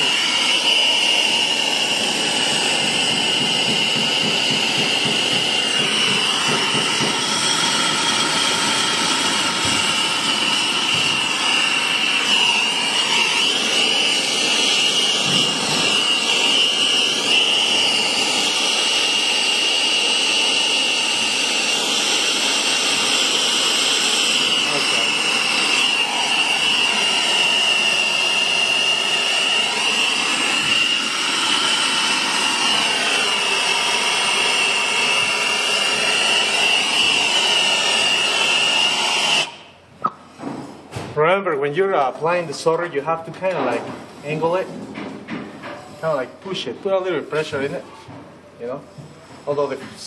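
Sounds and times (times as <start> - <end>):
gas torch flame hissing: 0.0 - 39.8.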